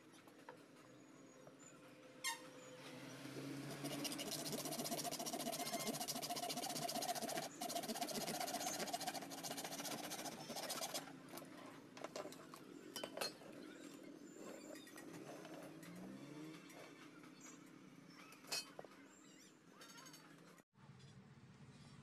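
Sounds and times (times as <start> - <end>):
hacksaw cutting aluminium: 3.7 - 11.1.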